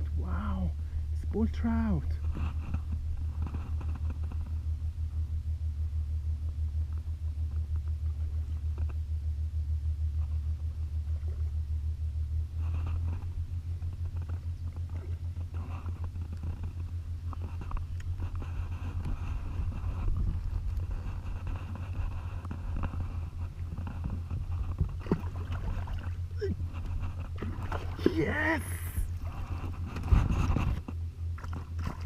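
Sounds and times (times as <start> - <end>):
wind buffeting microphone: 12.8 - 32.0.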